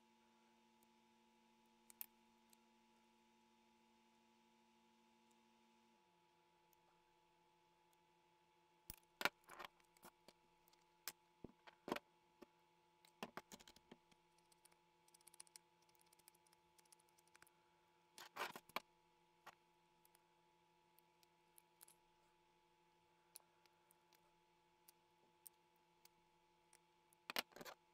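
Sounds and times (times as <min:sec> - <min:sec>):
faint steady hum: 0:00.0 - 0:27.9
plastic pieces clicking and snapping: 0:13.1 - 0:17.5, 0:27.2 - 0:27.8.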